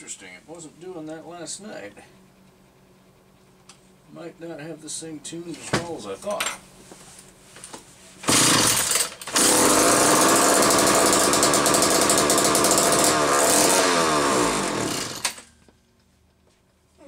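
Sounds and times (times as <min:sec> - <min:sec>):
chainsaw engine running and stalling: 0:08.2 - 0:15.5.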